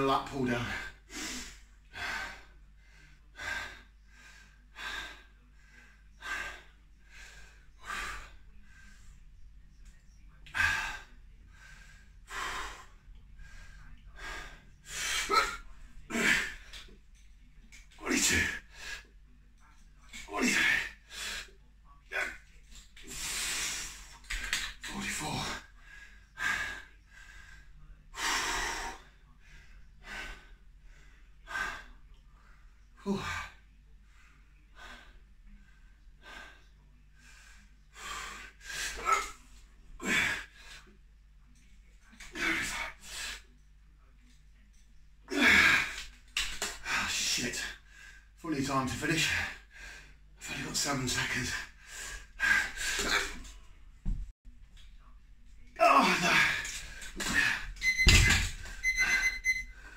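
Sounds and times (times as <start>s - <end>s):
man breathing hard: 0.8s - 9.1s, 10.6s - 15.3s.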